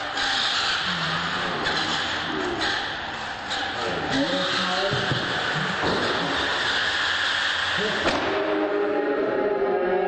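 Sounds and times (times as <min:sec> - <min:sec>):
rc truck motors whirring: 0:00.0 - 0:08.0.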